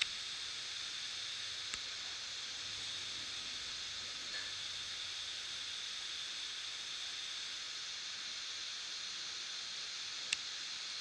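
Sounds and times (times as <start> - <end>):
recording hiss: 0.0 - 11.0.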